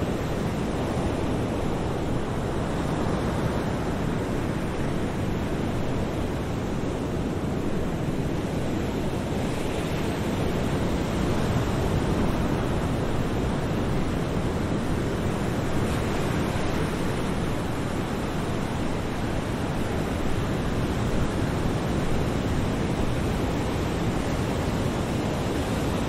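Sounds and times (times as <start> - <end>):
ocean surf: 0.0 - 26.0.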